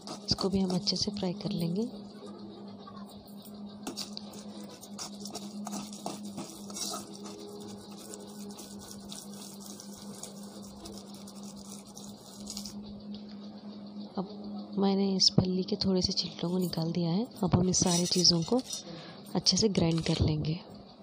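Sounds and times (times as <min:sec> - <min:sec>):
metal spoon scraping a pan: 0:00.0 - 0:01.1, 0:03.9 - 0:12.7, 0:17.6 - 0:19.0
low steady hum: 0:00.0 - 0:21.0.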